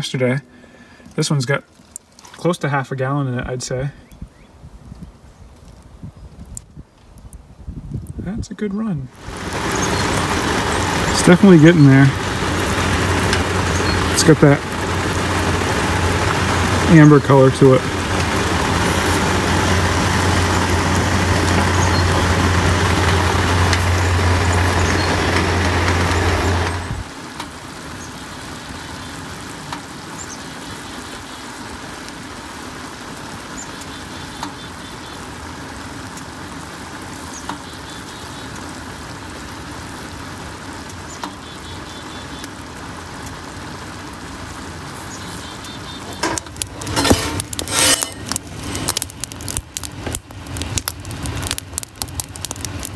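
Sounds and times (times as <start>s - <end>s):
sap boiling with bubbling hiss: 4.0s - 52.9s
sharp pops: 46.0s - 52.9s.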